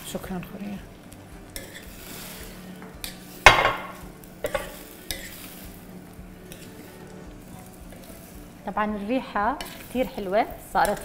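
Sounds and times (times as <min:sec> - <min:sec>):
low steady sizzle: 0:00.0 - 0:11.0
spatula stirring in frying pan: 0:00.9 - 0:11.0
spatula clanking against pan: 0:03.0 - 0:05.3.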